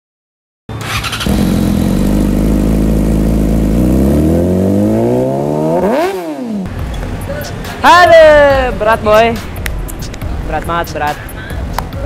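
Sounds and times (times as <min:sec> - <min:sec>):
engine revving: 0:00.7 - 0:06.7.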